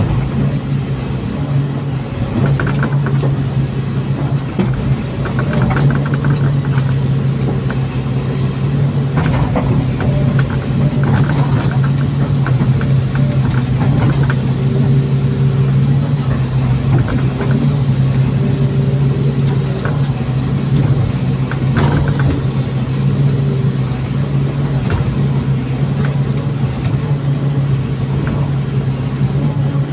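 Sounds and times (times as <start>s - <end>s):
excavator diesel engine running: 0.0s - 29.9s.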